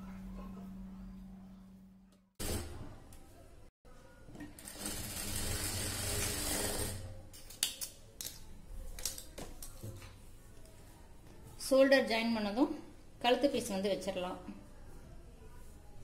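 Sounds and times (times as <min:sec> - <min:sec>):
sewing machine stitching: 0:02.4 - 0:02.9, 0:04.6 - 0:07.2.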